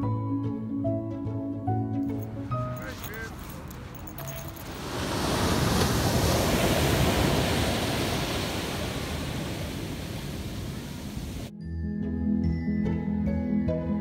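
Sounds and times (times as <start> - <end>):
ocean surf breaking on beach: 4.6 - 11.5.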